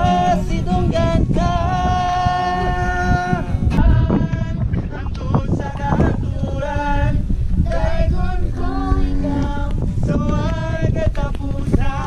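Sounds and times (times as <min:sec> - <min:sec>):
song with vocals over beat: 0:00.0 - 0:07.3.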